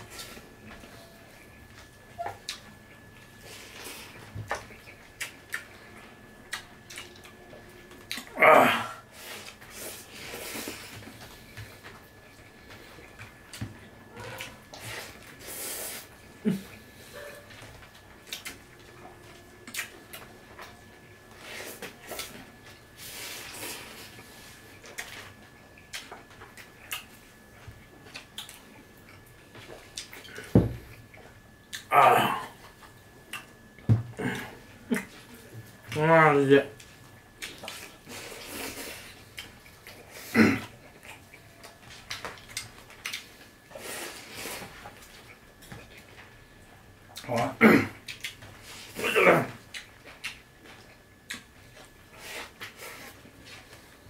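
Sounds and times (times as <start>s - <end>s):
people eating with fingers: 0.0s - 36.1s, 36.7s - 54.0s.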